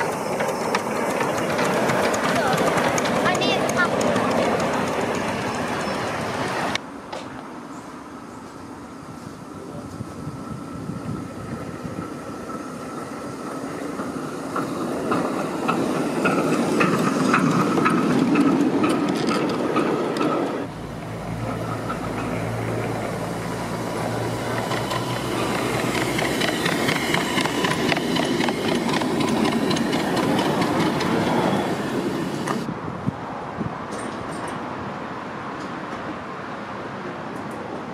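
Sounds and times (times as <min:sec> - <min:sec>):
miniature train running on track: 0:00.0 - 0:06.8, 0:09.6 - 0:32.7.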